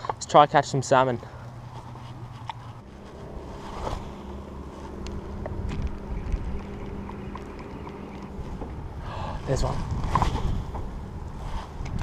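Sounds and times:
low steady hum: 0.0s - 12.0s
water around boat: 0.0s - 12.0s
wind on microphone: 2.6s - 12.0s.

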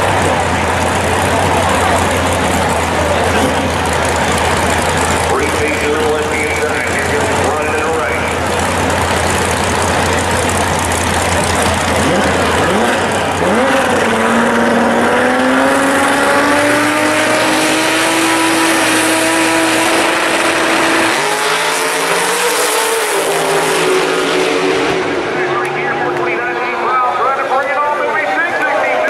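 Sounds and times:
drag race car engines revving: 0.0s - 29.0s.

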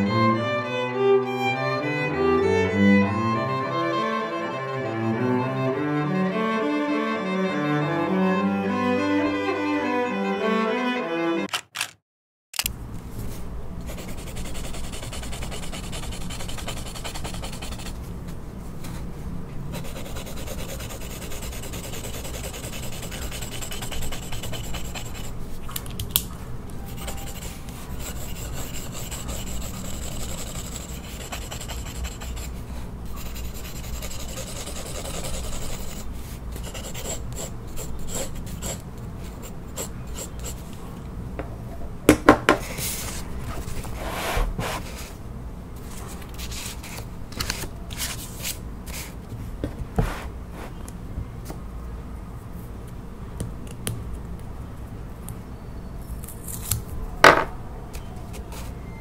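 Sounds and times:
pencil scratching on paper: 13.9s - 18.0s, 19.7s - 25.4s, 26.9s - 40.7s.

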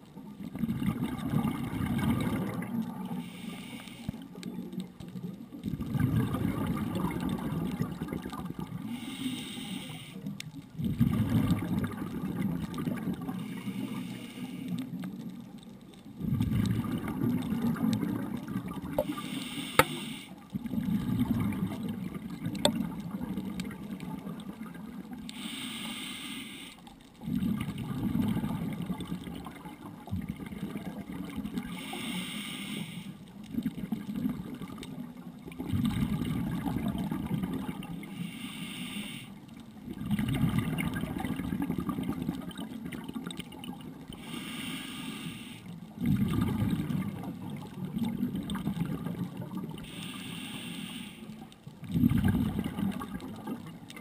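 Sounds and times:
underwater exhaled bubbles: 0.0s - 54.0s
regulator inhalation hiss: 3.2s - 4.1s, 8.8s - 10.3s, 13.4s - 14.8s, 19.1s - 20.4s, 25.3s - 26.8s, 31.8s - 33.2s, 38.1s - 39.4s, 44.2s - 45.7s, 49.8s - 51.4s.

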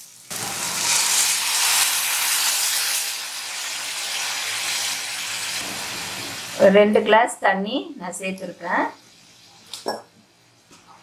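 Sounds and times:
water sizzling in hot pan: 0.0s - 6.8s, 8.6s - 9.9s.

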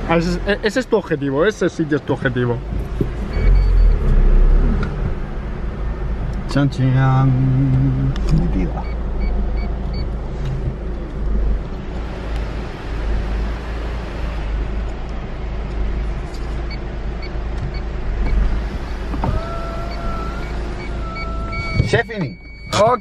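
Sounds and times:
low rumble inside car: 0.0s - 23.0s
electronic warning chime: 19.9s - 23.0s.

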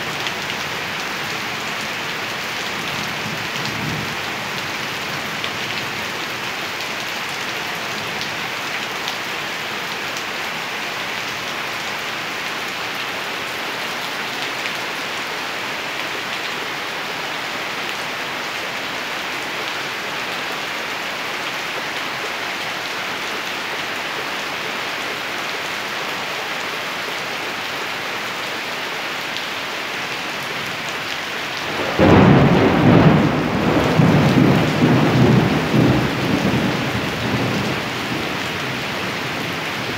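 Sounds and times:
heavy rain hissing: 29.0s - 39.9s
thunder rumbling: 31.7s - 38.8s.

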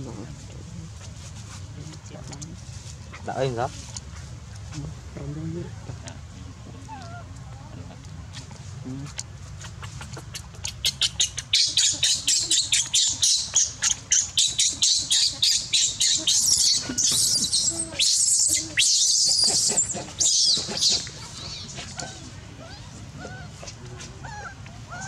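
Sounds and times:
infant monkey screaming: 10.2s - 25.0s.

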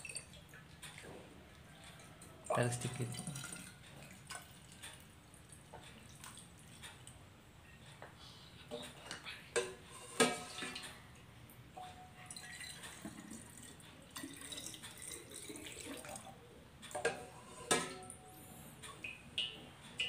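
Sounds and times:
water pouring through funnel: 2.4s - 4.9s, 12.3s - 16.4s.

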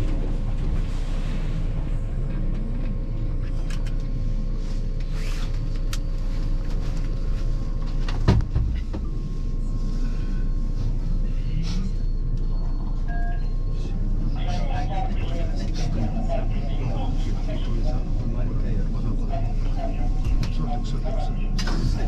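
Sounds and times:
train hum and rumble: 0.0s - 22.0s.

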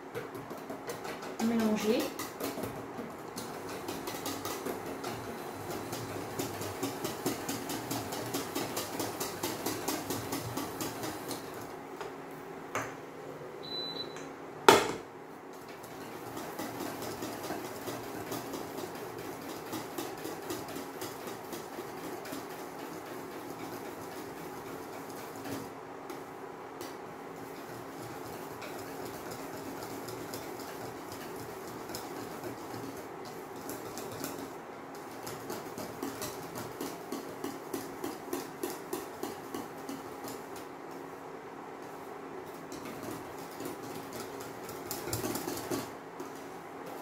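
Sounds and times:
whisk beating in metal bowl: 0.0s - 11.8s, 15.5s - 41.2s, 41.8s - 47.0s
short high beep: 13.6s - 14.2s.

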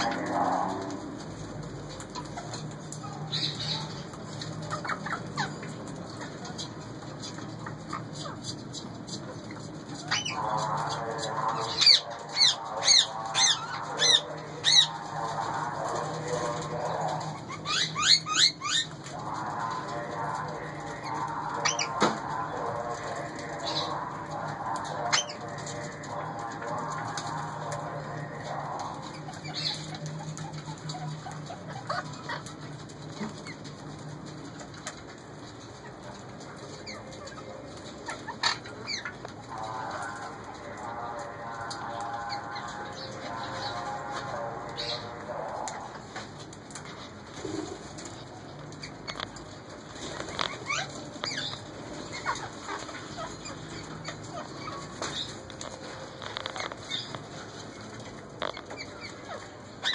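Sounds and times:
parakeets screeching: 0.0s - 1.1s, 2.0s - 6.8s, 7.6s - 33.6s, 36.7s - 45.9s, 50.0s - 59.9s.

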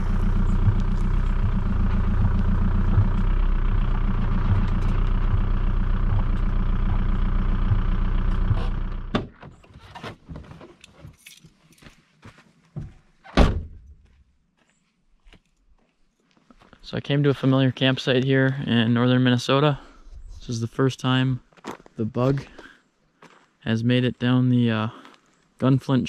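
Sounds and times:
car engine running: 0.0s - 9.4s
loud thump: 7.7s - 9.5s, 13.4s - 13.9s
car door opening: 7.7s - 11.2s.

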